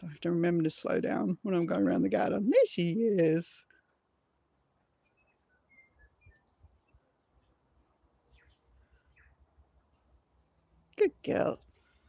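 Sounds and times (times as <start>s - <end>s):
faint high chirps: 3.7s - 10.3s.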